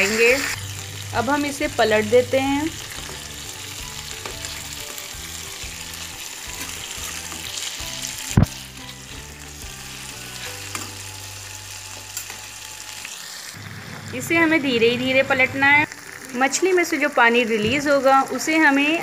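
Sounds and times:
fish sizzling in hot oil: 0:00.0 - 0:19.0
metal spatula turning food: 0:02.8 - 0:13.1.

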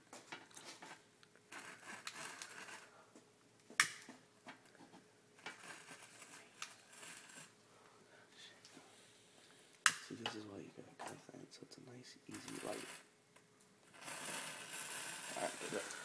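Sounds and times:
lighter flame hissing and crackling: 0:00.6 - 0:02.9, 0:05.4 - 0:07.6, 0:12.3 - 0:13.1, 0:13.8 - 0:16.0.

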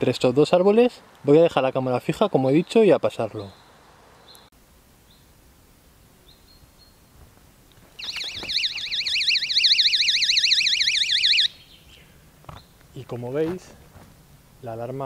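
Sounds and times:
warbling electronic alarm siren: 0:08.0 - 0:11.6.

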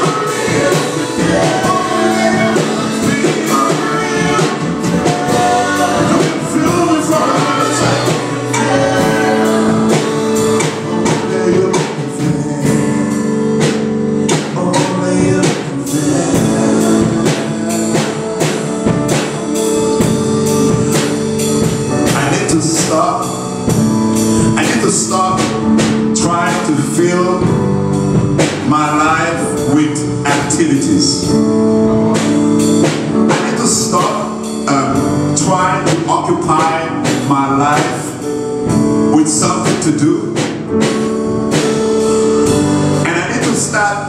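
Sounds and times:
person singing: 0:00.0 - 0:13.6, 0:14.2 - 0:21.4
drum and cymbal hits: 0:00.0 - 0:44.0
sustained digital piano chords: 0:00.0 - 0:44.0.

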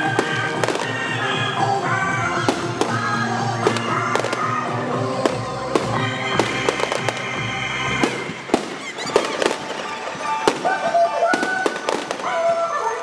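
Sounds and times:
music: 0:00.0 - 0:13.0
fireworks shells bursting: 0:08.0 - 0:12.3.

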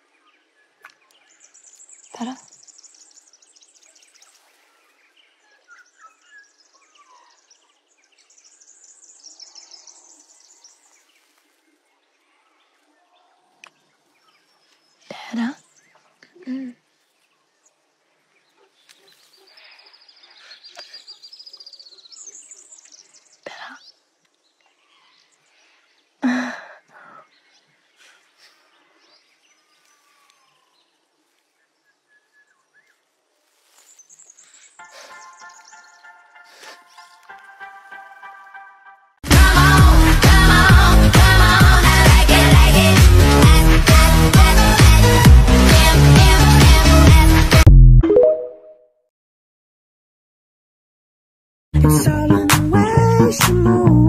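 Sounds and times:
birds chirping: 0:00.0 - 0:33.0, 0:33.8 - 0:38.8
faint outdoor ambience: 0:00.0 - 0:39.2.

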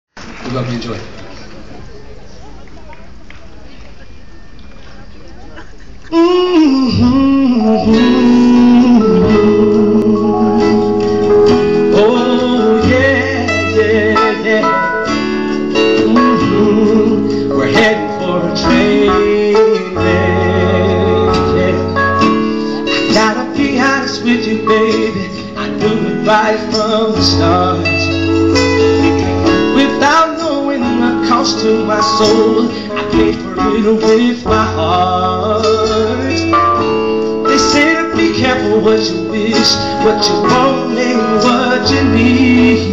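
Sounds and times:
live pop song over sound system: 0:05.8 - 0:42.9
man singing: 0:06.1 - 0:42.9.

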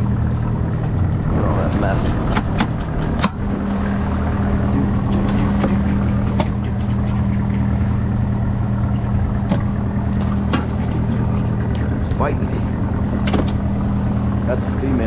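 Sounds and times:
boat engine running: 0:00.0 - 0:15.0
sharp knocks and clicks: 0:02.2 - 0:03.4, 0:05.1 - 0:07.7, 0:09.4 - 0:11.9, 0:13.2 - 0:13.6.

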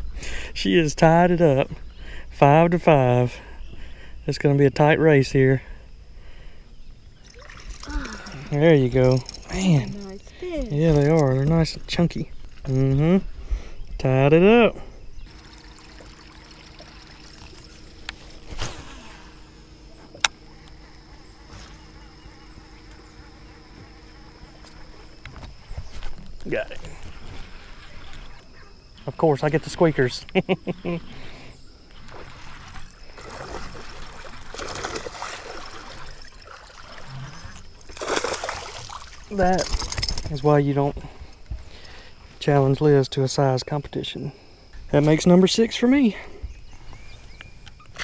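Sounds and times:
high insect drone: 0:00.0 - 0:48.0
water splashing and gurgling: 0:07.2 - 0:11.2, 0:15.3 - 0:19.6, 0:31.9 - 0:40.0.

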